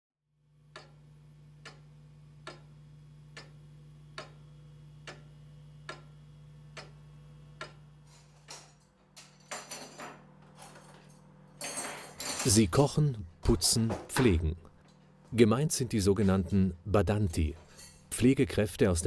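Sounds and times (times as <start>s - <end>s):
steady low hum: 0.4s - 19.0s
pendulum clock ticking: 0.7s - 7.9s.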